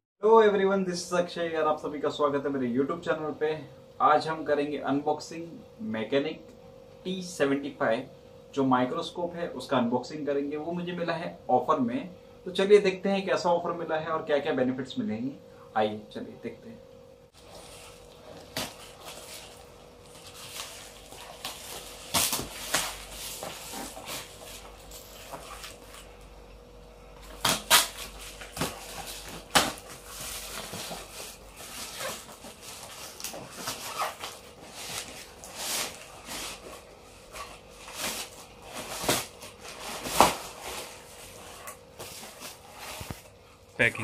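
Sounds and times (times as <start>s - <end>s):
scissors cutting plastic wrapping: 17.4s - 26.1s, 27.2s - 36.6s, 37.4s - 43.2s
plastic crinkling and rustling: 17.4s - 26.2s, 27.2s - 43.4s.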